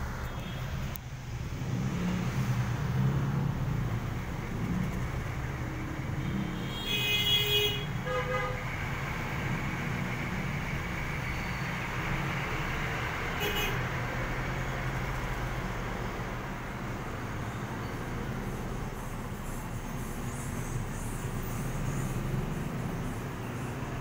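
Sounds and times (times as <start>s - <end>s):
traffic engine rumble: 0.0s - 24.0s
vehicle horn tooting: 6.3s - 8.6s, 13.3s - 13.8s.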